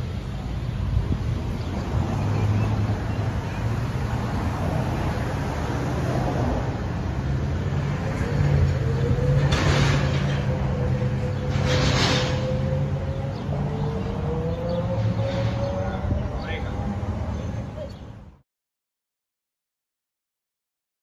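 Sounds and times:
street traffic rumble: 0.0s - 18.4s
wind noise on microphone: 0.4s - 5.5s, 7.8s - 17.3s.

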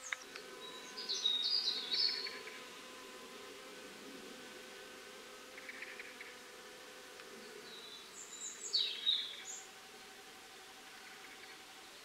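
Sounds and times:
birds singing: 0.0s - 4.8s, 5.4s - 6.5s, 7.2s - 12.0s
bee buzzing: 0.0s - 12.0s
bird chirps and whistle: 0.6s - 2.6s.

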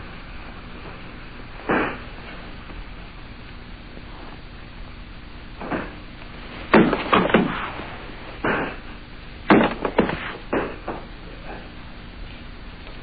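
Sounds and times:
bodies thudding on mat: 5.6s - 8.8s, 9.5s - 11.1s.

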